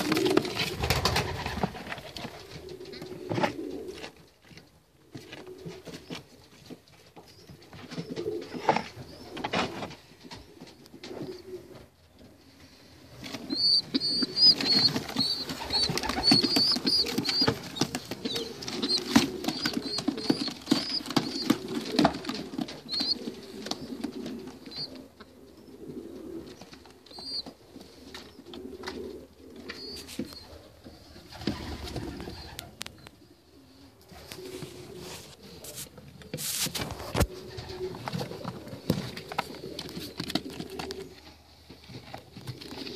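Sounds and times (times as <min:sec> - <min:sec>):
pigeon cooing: 0:00.0 - 0:04.2, 0:07.4 - 0:42.9
rustling: 0:00.0 - 0:42.9
young pigeons peeping: 0:00.0 - 0:42.9.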